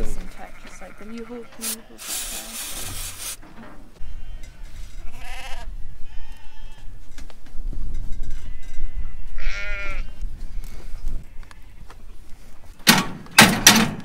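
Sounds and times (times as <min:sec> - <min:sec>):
sheep bleating: 0:04.0 - 0:06.9, 0:08.5 - 0:10.2.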